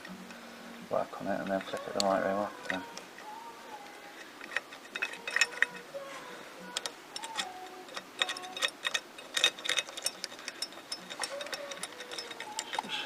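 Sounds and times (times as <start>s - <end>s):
ratchet wrench clicking: 4.4s - 5.8s, 6.7s - 13.0s.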